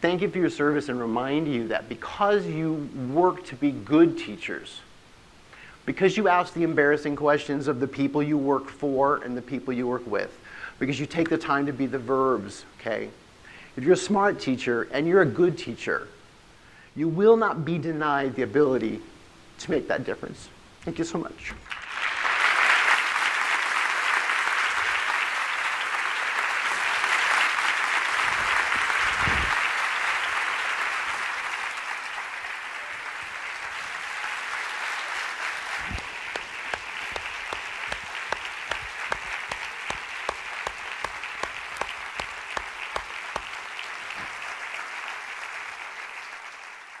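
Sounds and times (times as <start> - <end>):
audience applauding: 21.6 - 47.0
single sharp claps: 35.7 - 44.5.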